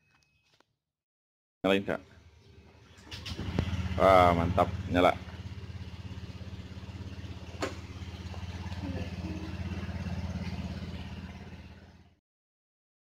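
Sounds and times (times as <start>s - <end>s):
scooter engine idling: 2.0s - 12.2s.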